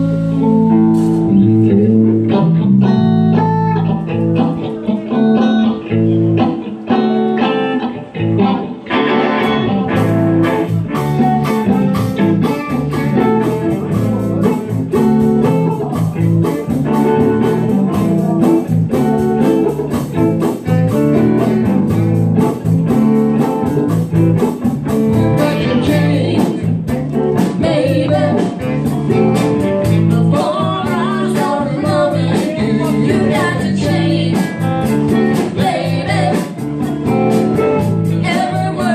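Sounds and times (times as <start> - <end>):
drums and cymbals: 0.0 - 1.7, 9.9 - 38.9
bass guitar: 0.0 - 38.9
electric guitars: 0.0 - 38.9
person singing: 14.4 - 18.2, 25.2 - 36.9, 38.0 - 38.9.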